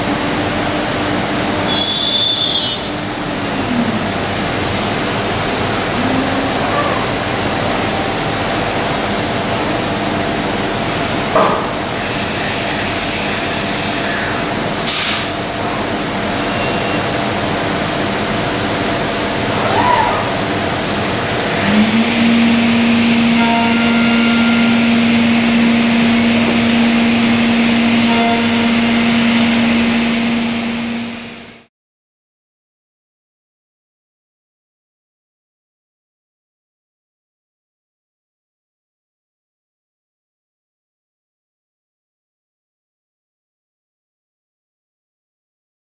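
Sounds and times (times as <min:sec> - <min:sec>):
cnc machine running: 0:00.0 - 0:14.8, 0:15.6 - 0:31.7.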